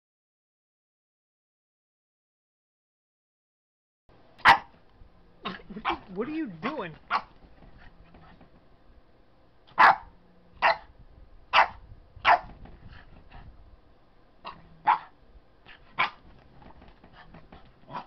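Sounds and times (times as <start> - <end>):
puppy barking in sharp yaps: 4.4 - 4.8, 7.1 - 7.4, 9.7 - 10.9, 11.5 - 12.6, 14.4 - 15.1, 16.0 - 16.3.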